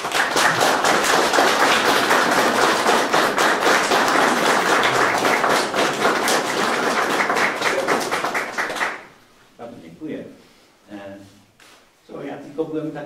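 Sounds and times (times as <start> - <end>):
audience applauding: 0.0 - 9.1.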